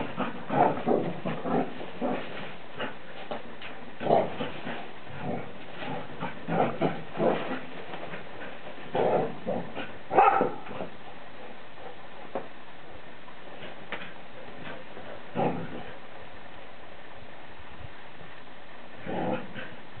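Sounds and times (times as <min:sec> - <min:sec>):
dogs barking playfully: 0:00.0 - 0:11.1.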